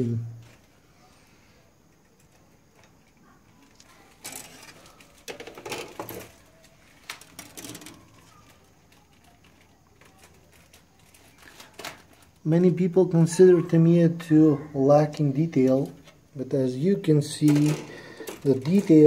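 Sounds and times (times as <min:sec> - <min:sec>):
plastic sprues clicking and rustling: 0:01.9 - 0:12.5, 0:15.1 - 0:16.3, 0:17.3 - 0:19.0.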